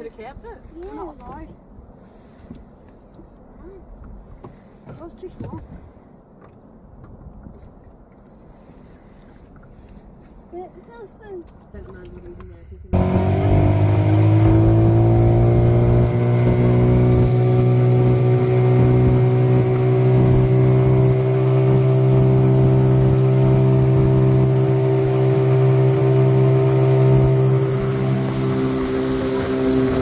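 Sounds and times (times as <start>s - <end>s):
outboard motor drone: 12.9s - 30.0s.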